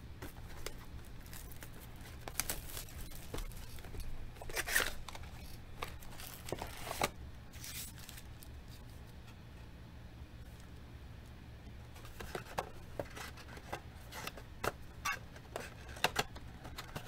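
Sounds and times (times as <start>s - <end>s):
foil wrappers crinkling and tearing: 0.4s - 8.9s.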